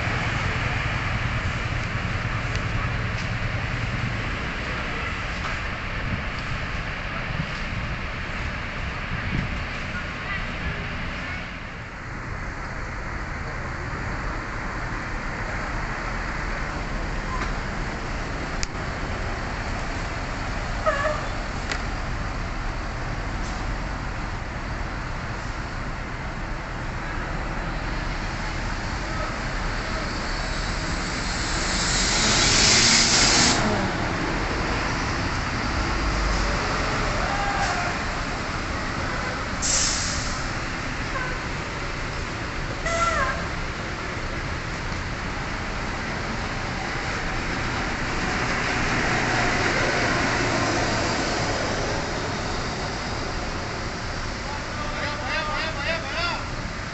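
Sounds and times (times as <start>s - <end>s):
diesel coach engine rumble: 0.0s - 56.9s
compressed air hiss: 30.5s - 33.8s, 39.6s - 40.5s.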